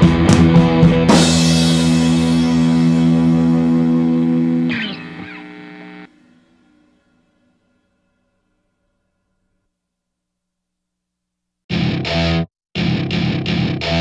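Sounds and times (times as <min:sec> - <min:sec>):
drum hits: 0:00.0 - 0:03.7
rock music with electric guitar: 0:00.0 - 0:06.4, 0:11.7 - 0:14.0.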